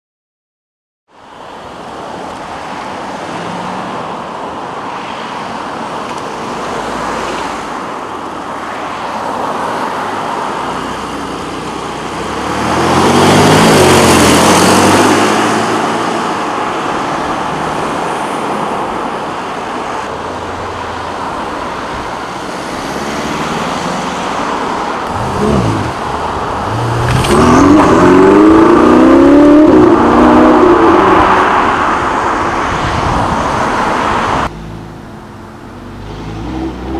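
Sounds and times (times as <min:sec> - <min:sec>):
car revving: 0:10.6 - 0:18.2, 0:20.0 - 0:36.9
car accelerating loudly: 0:12.0 - 0:16.3, 0:22.6 - 0:34.8, 0:35.9 - 0:36.9
sports car engines driving past: 0:22.2 - 0:36.9.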